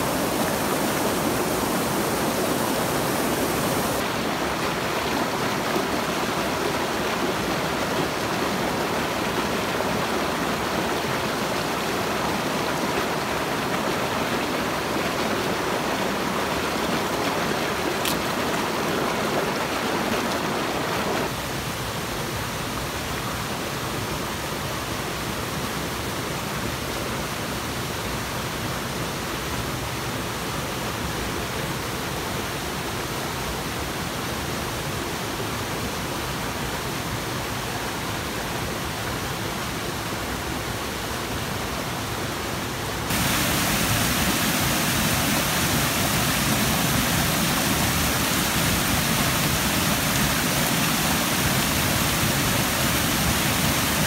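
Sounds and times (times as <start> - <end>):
waterfall rushing: 0.0 - 22.4, 36.5 - 54.0
water rushing over rocks: 0.0 - 22.7, 37.0 - 54.0.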